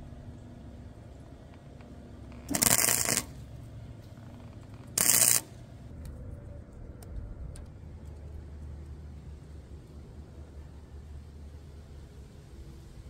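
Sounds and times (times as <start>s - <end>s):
arc welding crackle: 1.6s - 5.8s.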